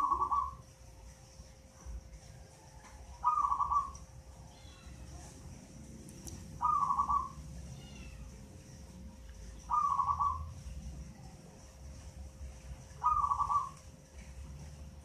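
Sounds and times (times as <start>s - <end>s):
dove cooing: 0.0s - 0.7s, 3.1s - 4.1s, 6.5s - 7.5s, 9.6s - 10.7s, 12.9s - 13.9s.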